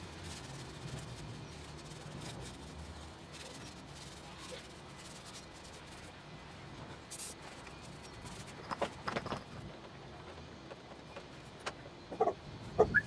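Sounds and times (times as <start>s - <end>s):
handling noise in engine bay: 7.1s - 13.0s.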